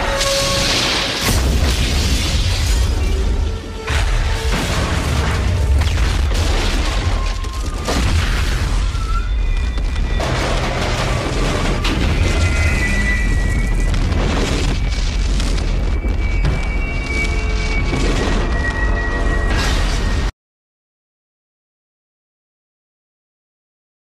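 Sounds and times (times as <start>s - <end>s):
film score music: 0.0s - 7.7s, 9.7s - 20.3s
train crash rumbling and booms: 0.0s - 20.3s.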